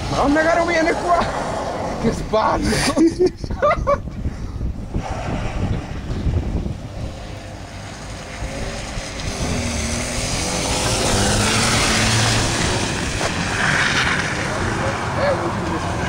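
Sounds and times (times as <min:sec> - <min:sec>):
car engine at high revs: 0:05.0 - 0:16.0.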